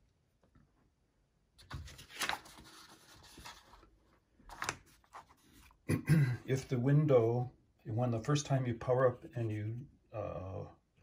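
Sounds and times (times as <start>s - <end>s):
paper booklets rustling: 1.6s - 5.8s.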